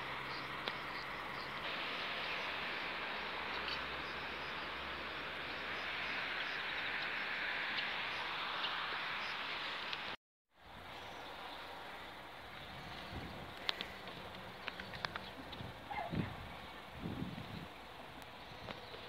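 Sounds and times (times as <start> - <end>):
faint clicks: 13.6 - 15.6.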